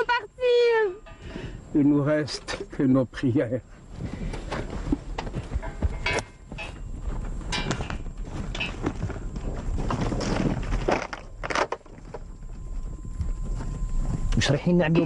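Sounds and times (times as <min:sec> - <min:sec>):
horse hooves knocking on ground: 0:04.0 - 0:15.0.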